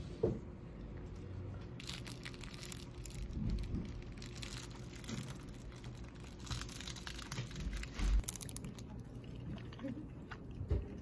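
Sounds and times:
plastic cling film crinkling: 1.8 - 8.8.

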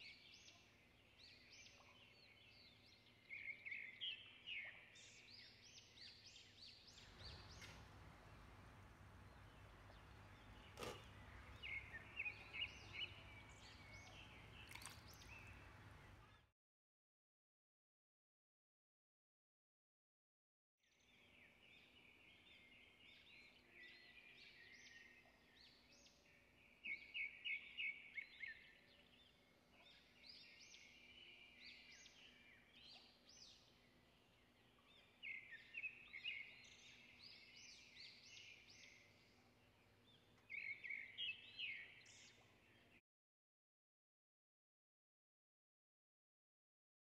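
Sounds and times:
birds chirping: 6.9 - 16.5
faint steady hum: 7.0 - 16.3.

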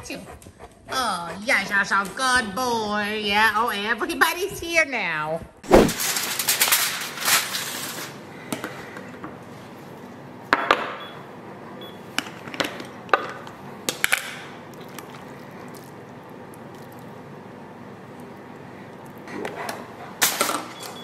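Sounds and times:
aluminium foil crinkling: 6.0 - 8.2.

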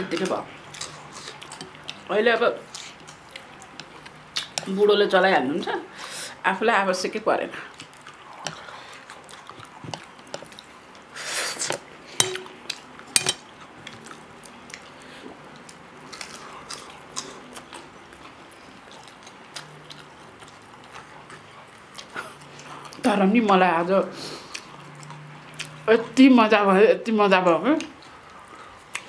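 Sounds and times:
quiet chewing: 0.0 - 4.8, 7.6 - 26.2, 27.8 - 29.0
chopsticks clinking on steel plates: 12.2 - 12.5, 13.1 - 13.5.

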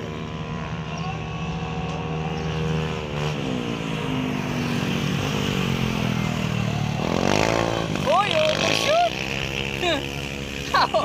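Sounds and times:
scooter engines running: 0.0 - 11.0.

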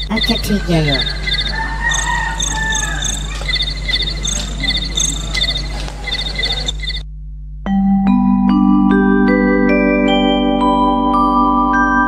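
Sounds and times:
faint drawn-out call: 0.0 - 7.0
insects chirping: 0.0 - 7.0
low electrical hum: 0.0 - 7.9.

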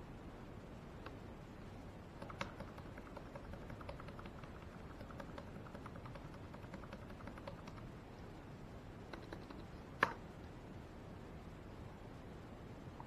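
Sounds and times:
laptop key clicking: 2.2 - 7.8.

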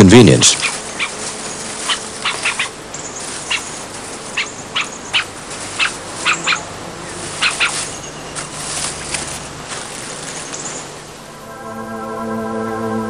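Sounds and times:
animal short sharp calls: 1.8 - 3.7, 4.3 - 6.7, 7.3 - 7.9.

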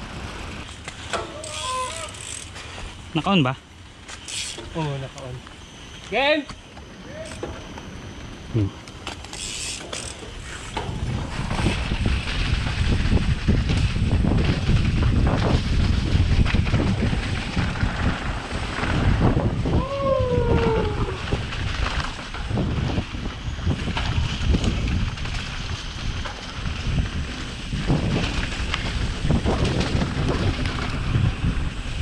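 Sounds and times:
bike knocks and rattles: 0.2 - 2.8, 9.0 - 19.5, 23.7 - 31.9
wind buffeting microphone: 10.4 - 32.0.

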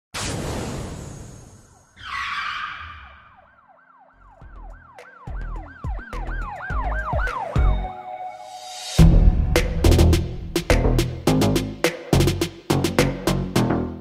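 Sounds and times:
siren-like wail sweeping: 1.3 - 9.1
deep bass thumps: 9.0 - 12.4.

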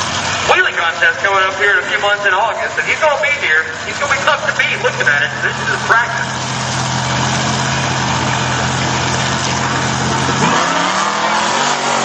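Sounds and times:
truck engine revving: 0.0 - 12.0.

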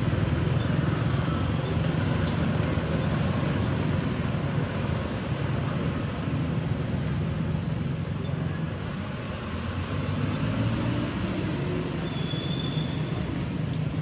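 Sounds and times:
faint high whistle: 12.0 - 13.2.

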